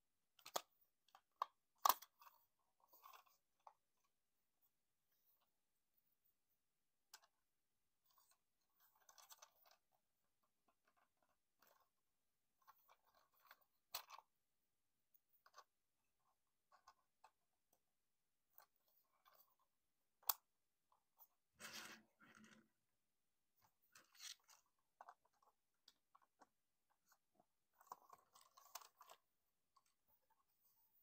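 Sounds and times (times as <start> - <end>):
plastic parts clicking and scraping: 0.3 - 4.1, 8.0 - 9.9, 18.4 - 22.9, 23.5 - 31.0.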